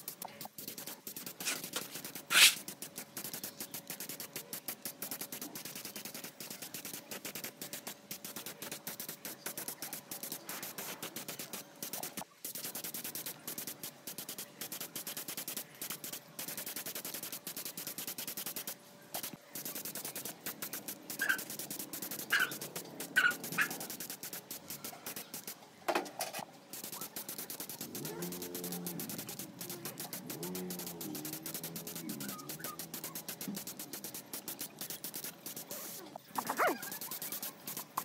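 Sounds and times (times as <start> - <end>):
rapid scraping: 0.7 - 12.8, 26.2 - 38.0.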